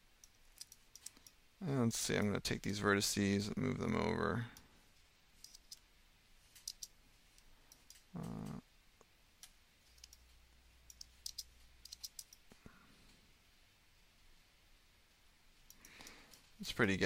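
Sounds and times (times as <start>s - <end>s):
mouse and keyboard clicks: 0.2s - 1.4s, 5.4s - 5.8s, 6.5s - 7.0s, 9.4s - 10.3s, 10.9s - 12.5s.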